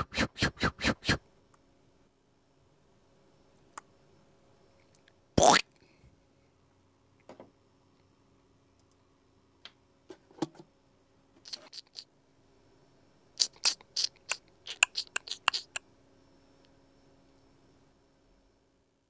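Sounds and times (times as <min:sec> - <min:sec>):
faint steady hum: 0:00.0 - 0:19.0
short crisp scratching: 0:11.4 - 0:12.1, 0:13.4 - 0:15.8.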